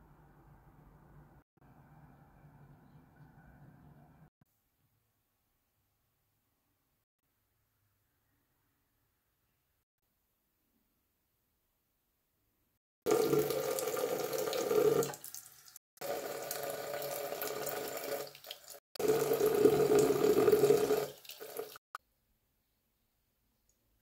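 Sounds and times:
tap water running into sink: 13.1s - 21.8s.

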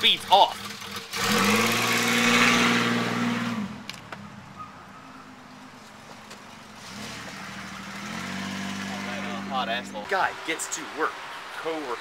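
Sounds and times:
pickup truck engine revving: 0.2s - 3.8s, 6.8s - 10.0s.

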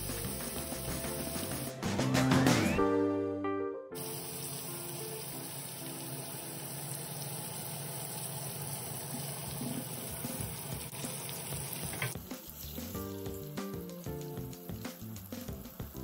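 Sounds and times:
fish frying in hot oil: 4.0s - 16.0s.

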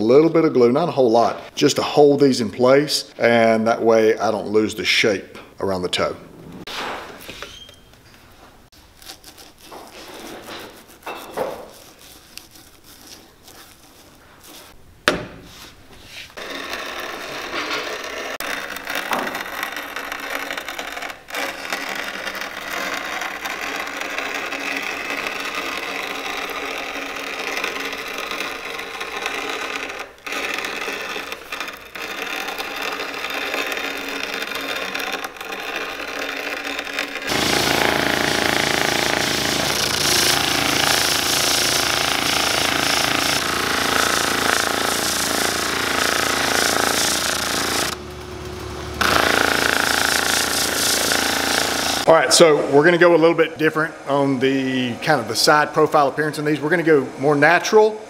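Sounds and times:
glue brush dabbing and scraping: 8.8s - 14.8s, 18.4s - 48.0s, 49.0s - 52.1s
cutting machine running: 16.4s - 52.5s.

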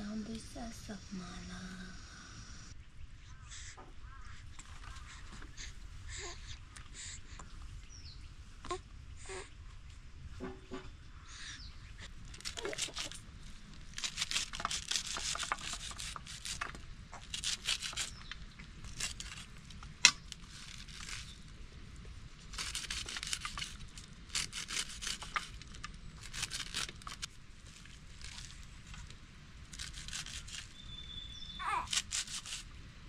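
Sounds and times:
plant shoots tearing and crackling: 12.3s - 21.6s, 22.5s - 30.9s, 31.6s - 32.7s.

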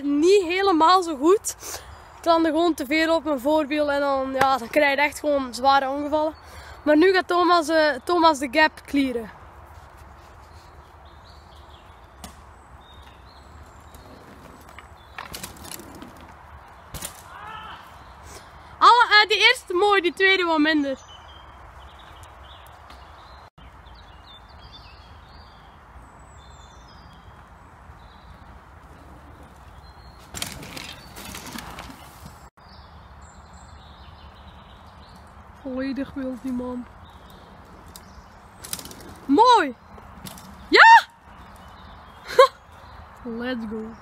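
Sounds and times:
birds singing: 0.0s - 44.0s
bike tyres crunching over dirt: 9.4s - 18.5s, 21.0s - 43.2s
bike rolling on dirt clattering: 12.5s - 17.3s, 26.4s - 32.5s, 36.2s - 40.7s.

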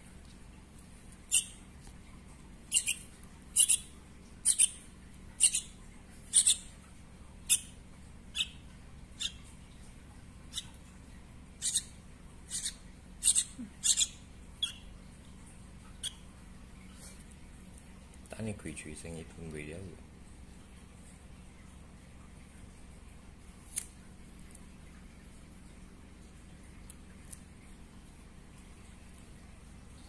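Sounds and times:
fledgling begging chirps: 1.3s - 1.6s, 2.7s - 4.8s, 5.4s - 6.7s, 8.3s - 8.6s, 9.2s - 9.4s, 11.6s - 11.9s, 12.5s - 14.9s.

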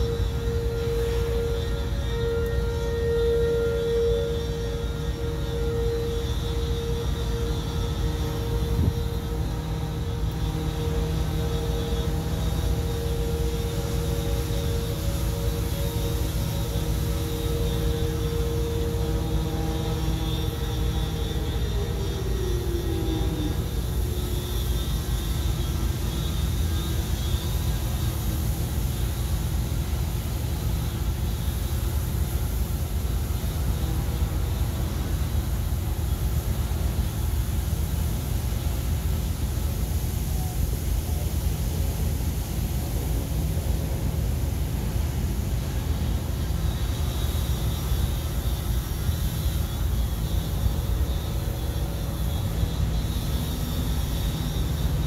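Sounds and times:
pressure washer running: 0.0s - 25.3s.

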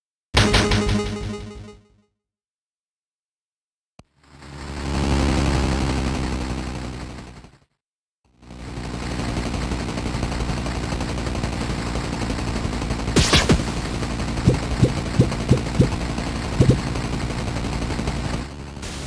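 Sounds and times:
bus engine idling: 13.7s - 18.1s.

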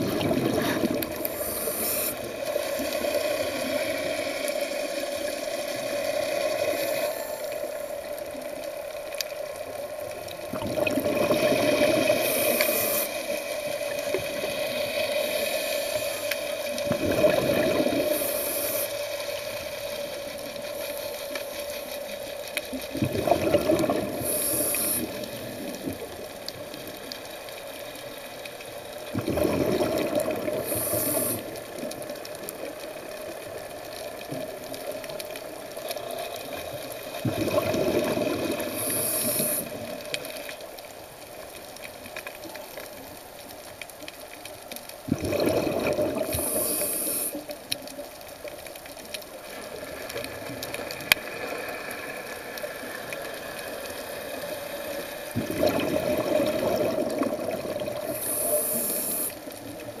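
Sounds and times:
exhaled bubbles rushing: 0.0s - 1.5s, 10.3s - 12.7s, 16.7s - 18.4s, 22.9s - 26.0s, 29.1s - 32.0s, 37.2s - 39.9s, 45.0s - 46.7s, 55.2s - 58.3s
low underwater hiss: 0.0s - 60.0s.

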